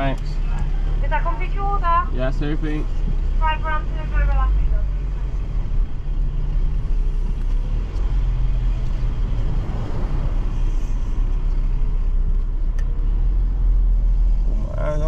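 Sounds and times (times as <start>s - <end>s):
car engine low rumble: 0.0s - 15.0s
rush of noise: 9.0s - 12.0s.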